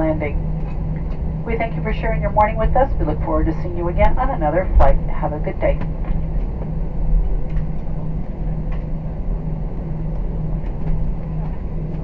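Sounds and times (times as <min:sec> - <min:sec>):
aircraft cabin rumble: 0:00.0 - 0:12.0
droning hum: 0:00.0 - 0:12.0.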